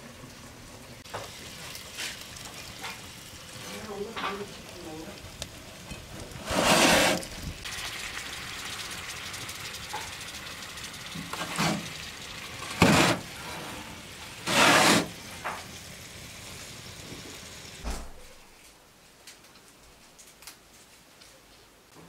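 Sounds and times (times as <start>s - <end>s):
peppers sizzling in pan: 0.0s - 18.6s
pan scraping on metal: 5.9s - 7.3s, 11.3s - 12.0s, 12.6s - 15.2s.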